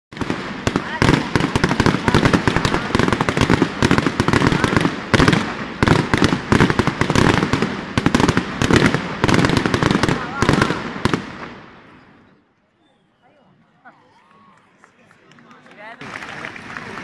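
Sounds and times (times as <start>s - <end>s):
fireworks bangs and crackles: 0.1s - 12.4s.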